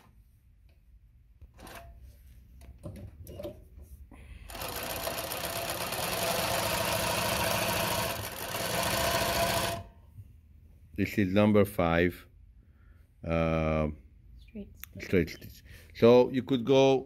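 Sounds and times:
sewing machine stitching: 0:04.5 - 0:09.9.

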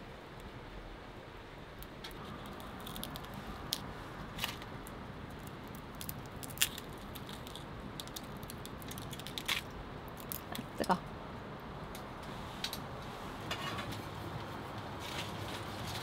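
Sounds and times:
chestnut shells cracking: 0:02.2 - 0:10.7.

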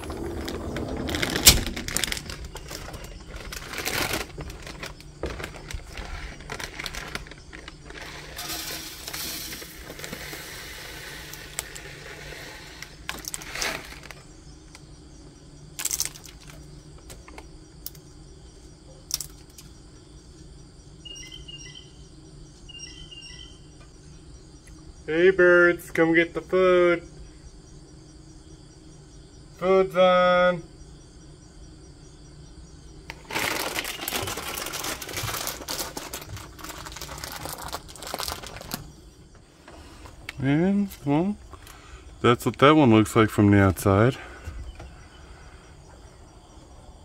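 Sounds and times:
seed pouring hiss: 0:00.0 - 0:04.9, 0:05.5 - 0:14.2, 0:33.1 - 0:38.9
plastic bag rustling: 0:00.0 - 0:14.3, 0:33.1 - 0:39.0.

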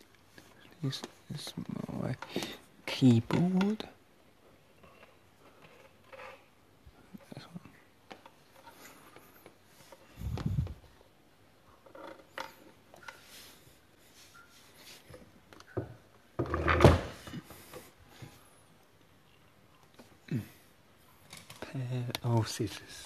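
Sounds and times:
knocks and clunks of handling: 0:15.1 - 0:17.9.

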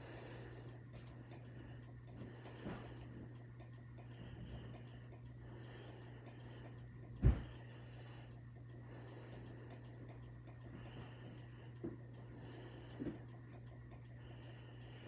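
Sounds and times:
person breathing slowly: 0:00.0 - 0:15.0
small ticks: 0:00.0 - 0:15.0
steady low hum: 0:00.0 - 0:15.0.

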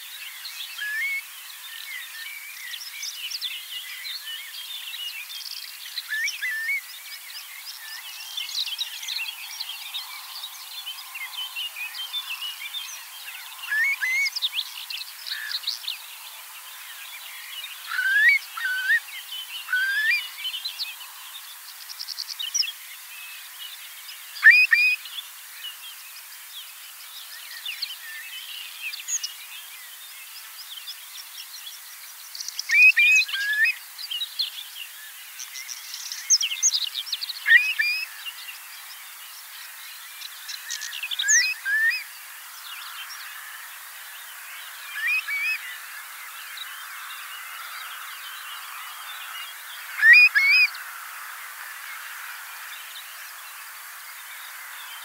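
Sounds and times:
faint hiss: 0:00.0 - 0:55.0
curlew calling: 0:17.9 - 0:20.3, 0:24.4 - 0:25.0, 0:32.7 - 0:33.8, 0:37.4 - 0:38.2, 0:41.2 - 0:42.1, 0:44.9 - 0:45.6, 0:49.9 - 0:50.8.

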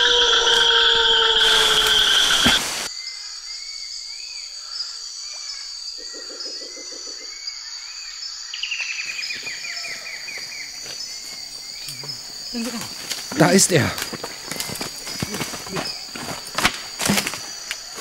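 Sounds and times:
falling trill: 0:00.0 - 0:02.9
high-pitched insect drone: 0:00.0 - 0:02.9
low fast pulsing call: 0:00.0 - 0:02.9.

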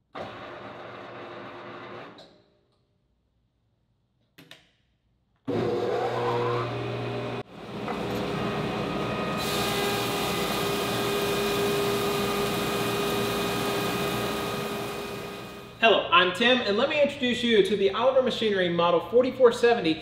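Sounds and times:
planer motor whining: 0:05.5 - 0:15.7
board cutting hiss: 0:09.4 - 0:15.1.

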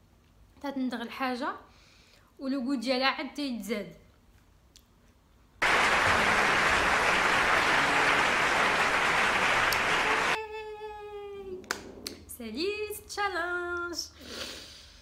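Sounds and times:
applause: 0:05.6 - 0:10.4.

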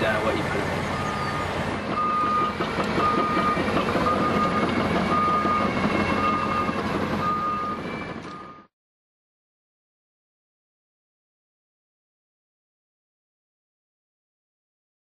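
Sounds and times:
diesel engine running: 0:00.0 - 0:08.7
heavy machine tracking across ground: 0:00.0 - 0:08.7
travel alarm beeping: 0:01.0 - 0:08.7.

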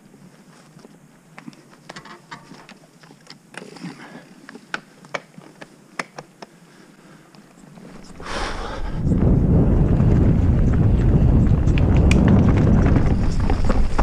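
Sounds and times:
bike tyre noise: 0:07.8 - 0:14.0
wind rushing: 0:08.0 - 0:14.0.

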